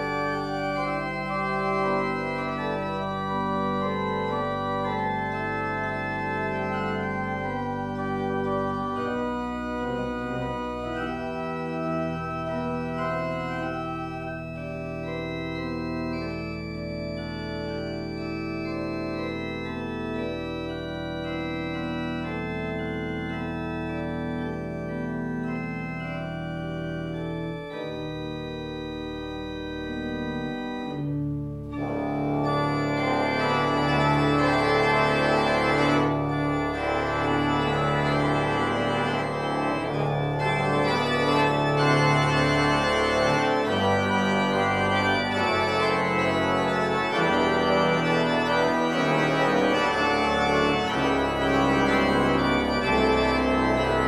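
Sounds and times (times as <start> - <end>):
church organ playing chords: 0.0 - 54.0.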